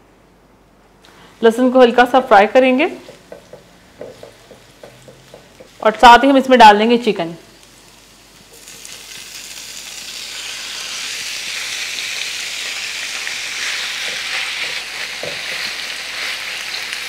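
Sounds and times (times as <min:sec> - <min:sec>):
chicken sizzling in hot oil: 0:07.5 - 0:17.0.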